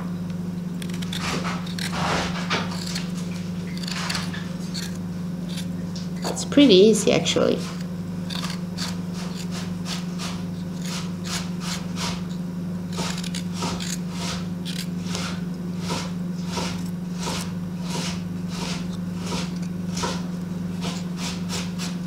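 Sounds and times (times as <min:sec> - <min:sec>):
steady low hum: 0:00.0 - 0:22.0
knife scraping ginger skin: 0:00.8 - 0:06.5, 0:07.5 - 0:22.0.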